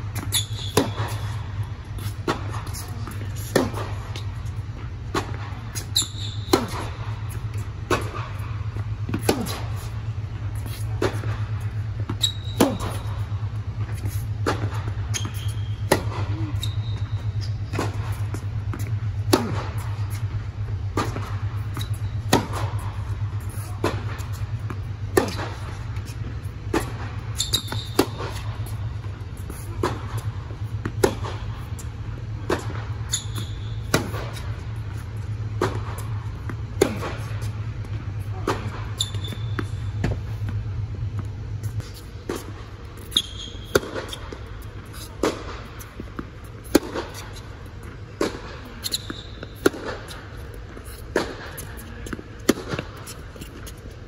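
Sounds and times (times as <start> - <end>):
shoes squeaking on court: 0.0 - 54.0
steady low hum: 0.0 - 54.0
racket hitting tennis ball: 0.1 - 53.9
ball bouncing: 14.4 - 34.5.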